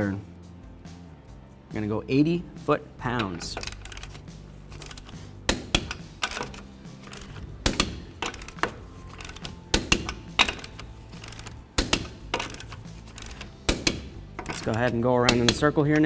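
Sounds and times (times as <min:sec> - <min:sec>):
socket clinking on nuts: 0:03.1 - 0:16.0
torque wrench clicks: 0:03.2 - 0:15.7.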